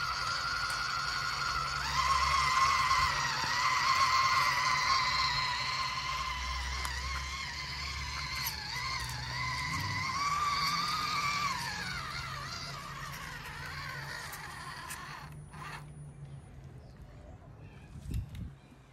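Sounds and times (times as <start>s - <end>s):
driving through muddy water: 0.0s - 15.0s
toy truck motor whining: 0.0s - 16.1s.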